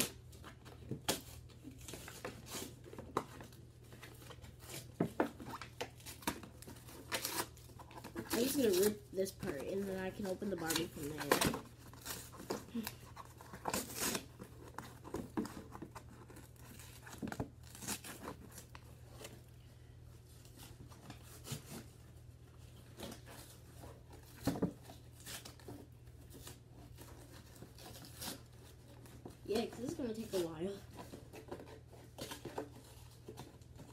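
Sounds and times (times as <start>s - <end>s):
packaging ripping and crinkling: 0.0s - 19.4s.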